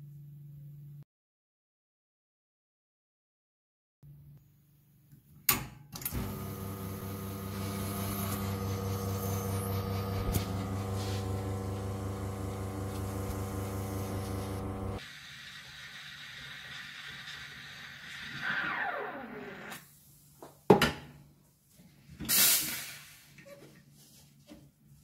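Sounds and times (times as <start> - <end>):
espresso machine pump running: 6.1 - 17.6.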